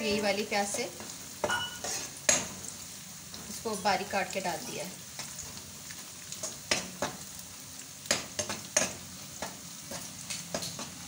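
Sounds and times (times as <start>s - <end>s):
onions sizzling in oil: 0.0s - 11.0s
metal spoon scraping pan: 0.8s - 2.5s.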